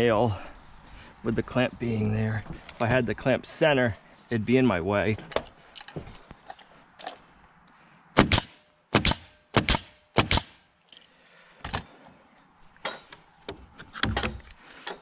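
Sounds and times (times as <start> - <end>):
nail gun firing: 8.2 - 10.6.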